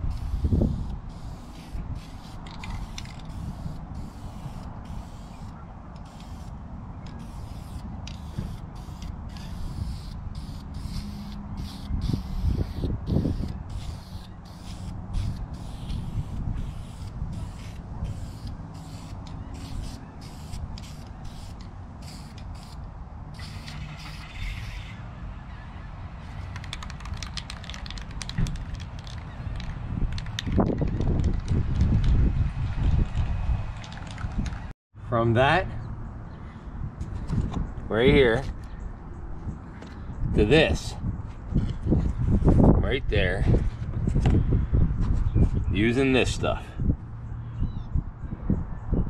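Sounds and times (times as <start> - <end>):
wind rumbling on microphone: 0.0 - 25.2, 25.8 - 34.7, 35.8 - 49.0
spray can hissing: 0.1 - 6.5, 7.2 - 22.8, 23.4 - 24.9.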